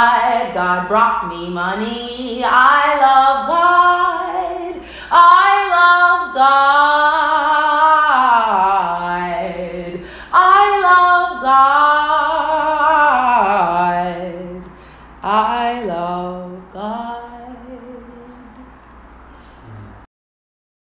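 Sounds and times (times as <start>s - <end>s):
woman singing unaccompanied: 0.0s - 18.8s.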